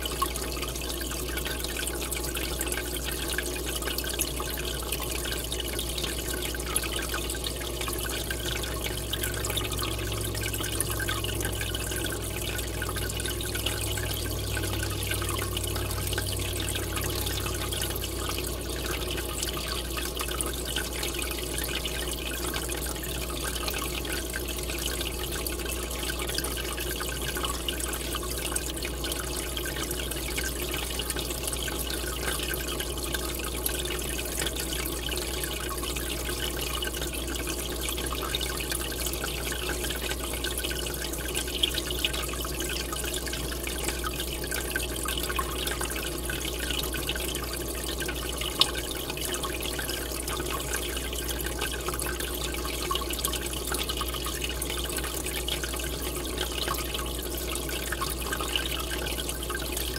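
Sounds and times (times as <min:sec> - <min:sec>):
aquarium water bubbling: 0:00.0 - 0:59.9.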